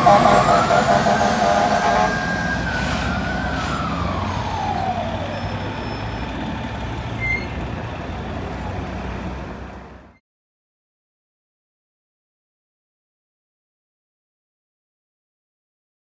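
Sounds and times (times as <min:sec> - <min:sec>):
fire engine siren winding down: 0:00.0 - 0:09.6
city traffic rumble: 0:00.0 - 0:10.2.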